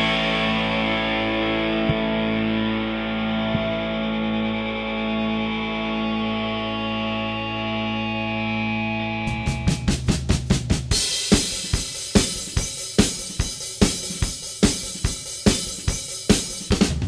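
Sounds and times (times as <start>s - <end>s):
drum hits over held low note: 3.5s - 3.9s.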